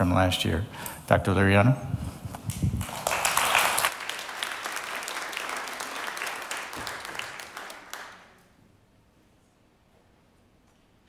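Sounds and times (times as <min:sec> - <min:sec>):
audience applauding: 0:02.8 - 0:08.5.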